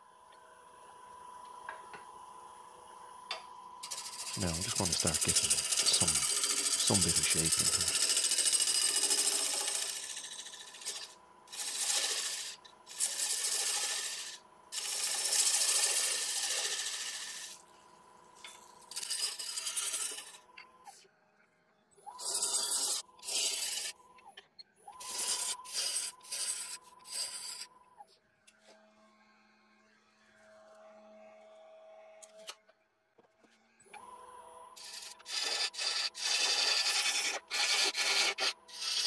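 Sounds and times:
gouge cutting wood on lathe: 0:03.8 - 0:17.6, 0:18.9 - 0:20.5, 0:22.2 - 0:24.0, 0:25.0 - 0:27.7, 0:34.8 - 0:39.0.

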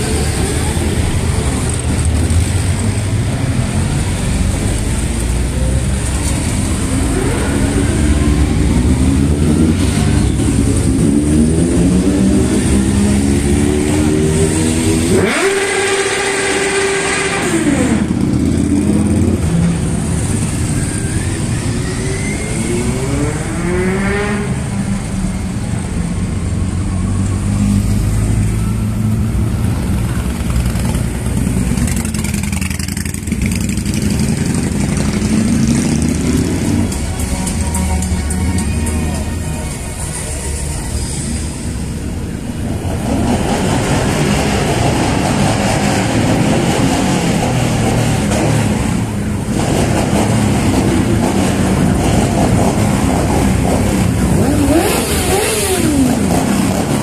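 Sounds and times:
loud rising tone: 0:06.4 - 0:29.4
motorcycles revving past: 0:53.5 - 0:57.0.

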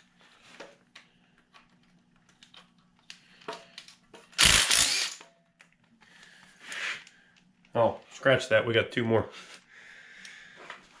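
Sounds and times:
cordless driver whirring: 0:04.4 - 0:05.2.

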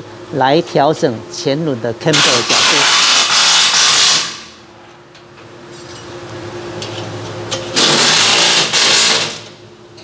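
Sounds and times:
steady hum: 0:00.0 - 0:10.0
power wrench bursts: 0:07.8 - 0:09.4.

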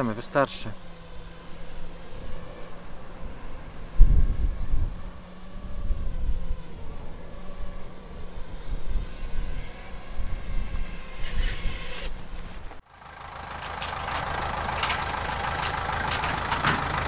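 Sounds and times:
drone propeller noise: 0:00.0 - 0:12.8
tractor diesel engine running: 0:00.0 - 0:17.0.

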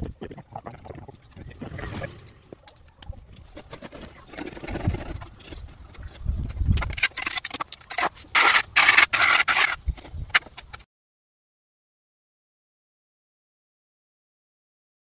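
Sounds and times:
hand tools scraping render: 0:03.5 - 0:10.8.

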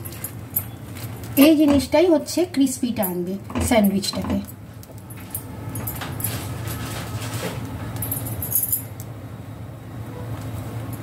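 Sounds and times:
sandwich rustling on a pan: 0:06.3 - 0:08.0.

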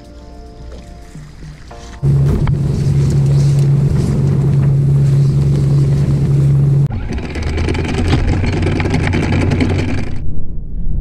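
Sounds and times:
low hum: 0:01.1 - 0:11.0
wind and water rushing: 0:01.3 - 0:06.9.

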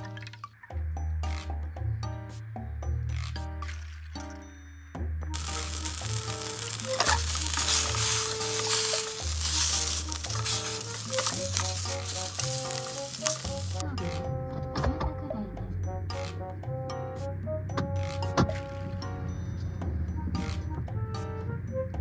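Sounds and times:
background music: 0:00.0 - 0:22.0
sausages sizzling in a pan: 0:05.4 - 0:13.8.

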